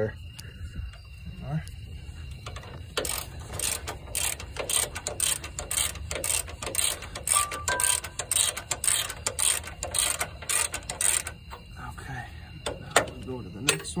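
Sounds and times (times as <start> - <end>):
socket ratchet clicking: 2.4 - 11.6.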